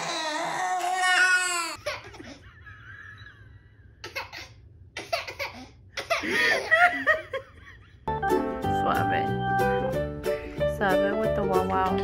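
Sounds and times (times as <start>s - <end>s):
baby crying: 0.0s - 4.5s.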